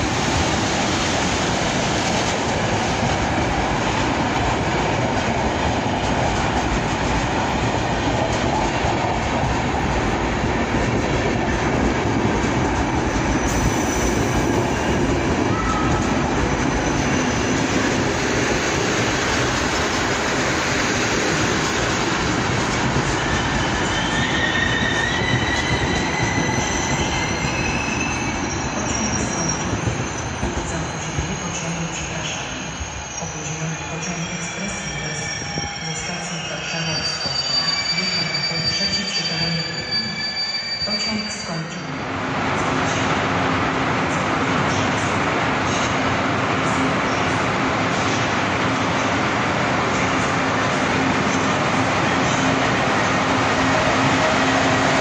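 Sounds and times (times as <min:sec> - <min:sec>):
train wheels rumbling on rails: 0:00.0 - 0:37.7, 0:41.5 - 0:55.0
train brakes squealing: 0:13.4 - 0:17.7, 0:23.2 - 0:42.1.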